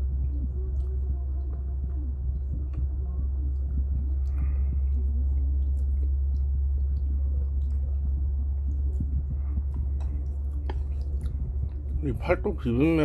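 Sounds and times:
steady low hum: 0.0 - 13.0
chewing noodles with wet clicks: 3.5 - 13.0.

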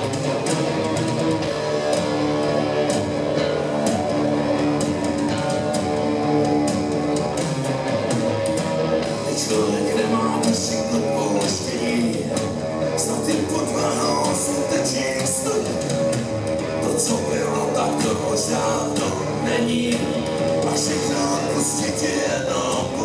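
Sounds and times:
drum kit: 0.0 - 23.0
electric bass: 0.0 - 23.0
electric guitars: 0.0 - 23.0.

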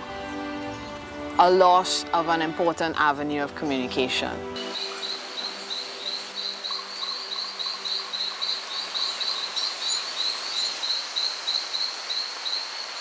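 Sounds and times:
insect chirping: 4.6 - 13.0
soft forest hiss: 4.6 - 13.0.

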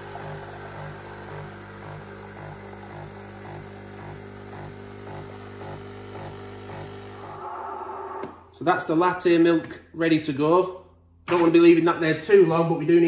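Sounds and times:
steam wand frothing milk: 0.0 - 8.2
coffee machine pulsing hum: 0.0 - 8.4.

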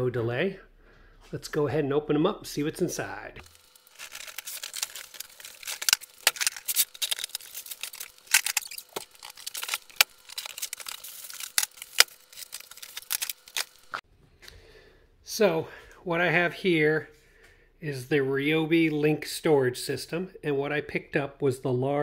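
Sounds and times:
paper and cardboard crinkling: 3.4 - 14.0.

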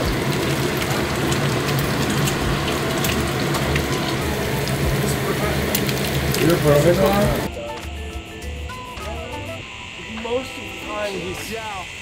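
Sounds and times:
dumplings sizzling in skillet: 0.0 - 7.5.

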